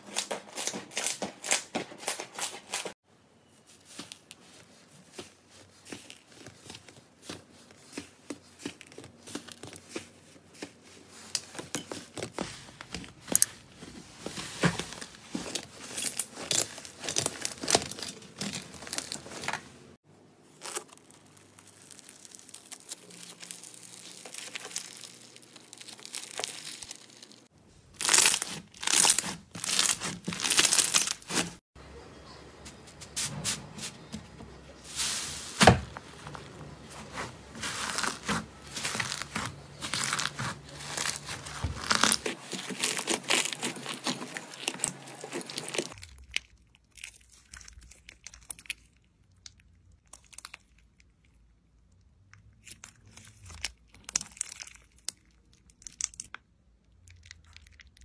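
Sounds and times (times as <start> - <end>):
crunchy beaded slime crackles: 20.5 - 31.6, 37.4 - 58.0
slime crackling: 20.5 - 31.6, 36.8 - 51.0.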